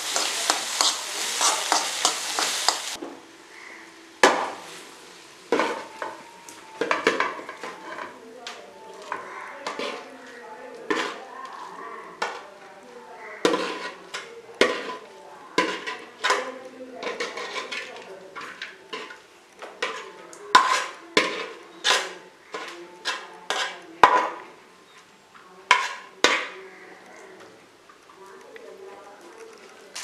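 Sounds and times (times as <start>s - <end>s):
metal spoon scraping pots: 0.0s - 3.0s, 6.8s - 8.2s, 9.0s - 12.5s, 13.4s - 24.5s, 25.7s - 26.6s.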